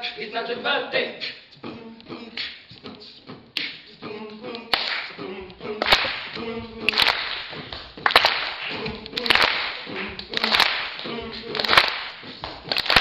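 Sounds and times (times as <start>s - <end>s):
sung vocal tones: 0.0s - 7.8s, 8.6s - 12.4s
beatbox hissing sounds: 2.2s - 4.1s
beatbox snare hits: 2.3s - 3.9s.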